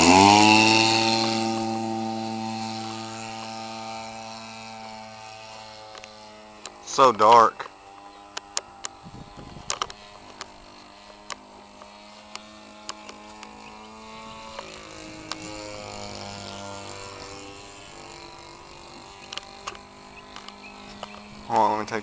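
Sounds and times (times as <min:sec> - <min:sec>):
model airplane engine drone: 0:00.0 - 0:22.0
sharp clicks: 0:19.2 - 0:21.3.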